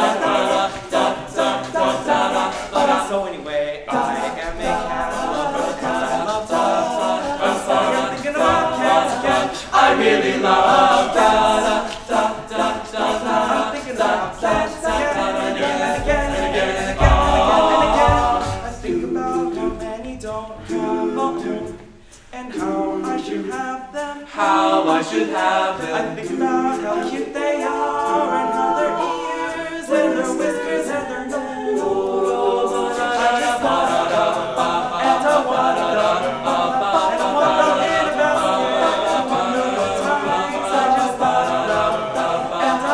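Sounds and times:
male a cappella group singing: 0:00.0 - 0:42.9
low thumps: 0:14.2 - 0:20.6.

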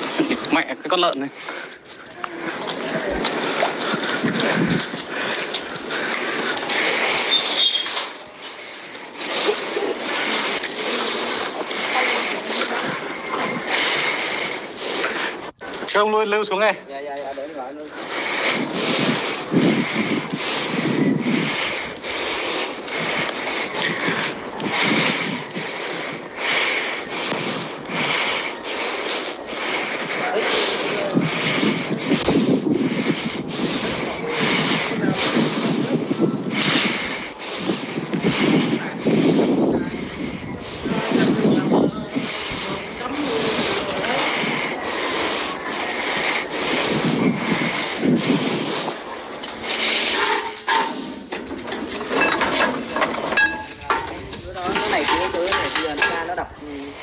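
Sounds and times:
wind buffeting microphone: 0:01.8 - 0:07.3, 0:09.1 - 0:15.8, 0:17.8 - 0:50.1, 0:51.4 - 0:57.0
steady rushing noise: 0:17.8 - 0:55.8.

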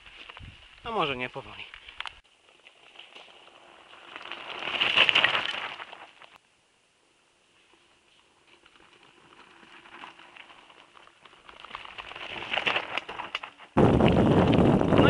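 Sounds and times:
bike tyres crunching on gravel: 0:00.0 - 0:06.4, 0:07.6 - 0:15.0
wind buffeting microphone: 0:13.8 - 0:15.0.

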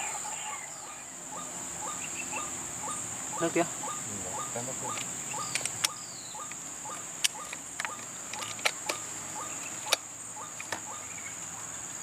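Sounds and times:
bird calling rising notes: 0:00.0 - 0:11.4
high-pitched insect drone: 0:00.0 - 0:12.0
sharp clicks: 0:04.9 - 0:10.9.

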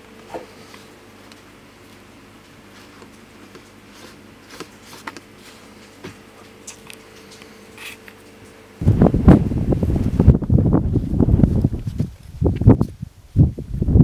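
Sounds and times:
faint steady hum: 0:00.0 - 0:14.0
gusty wind on microphone: 0:08.8 - 0:14.0.

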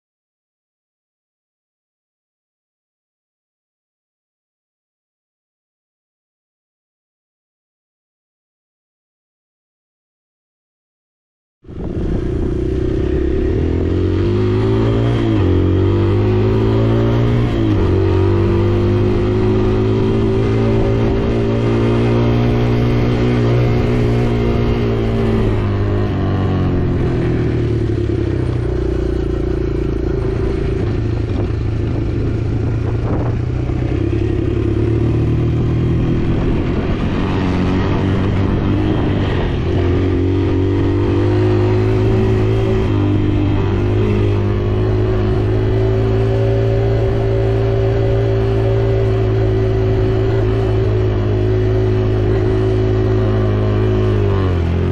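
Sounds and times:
dirt bike engine revving: 0:11.7 - 0:54.9.

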